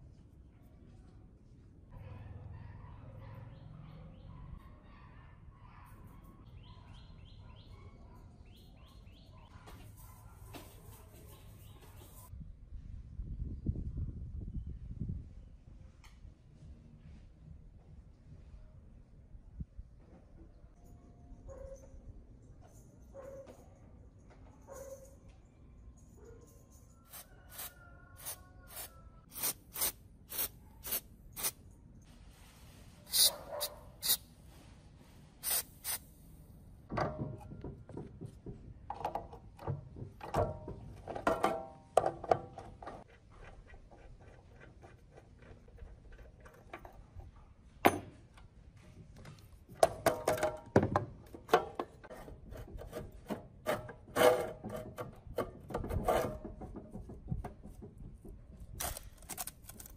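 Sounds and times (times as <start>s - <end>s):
rusty metal parts scraping: 51.9s - 56.6s.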